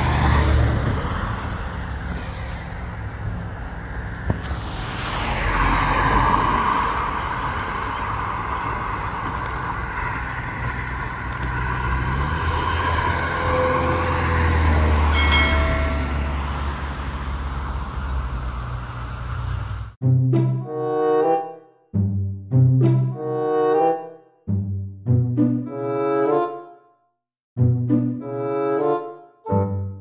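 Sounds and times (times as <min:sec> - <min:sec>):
cars driving by: 0:00.0 - 0:20.0.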